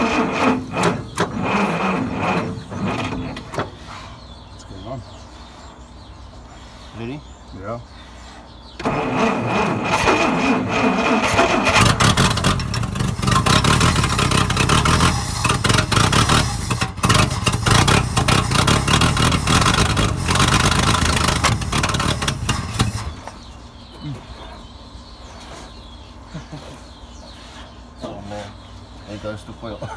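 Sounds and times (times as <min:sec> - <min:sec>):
engine running roughly: 0:00.0 - 0:03.6, 0:08.8 - 0:23.4
engine cranking on starter: 0:00.0 - 0:03.7, 0:08.8 - 0:23.2.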